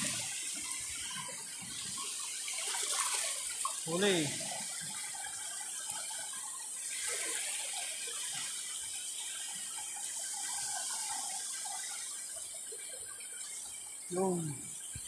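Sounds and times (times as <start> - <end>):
seawater sloshing and trickling: 0.0 - 15.0
steady high hiss: 13.4 - 15.0.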